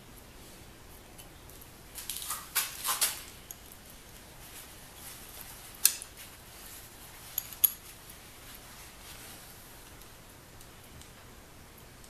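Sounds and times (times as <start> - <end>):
hand tools scraping and rustling: 2.0 - 9.6.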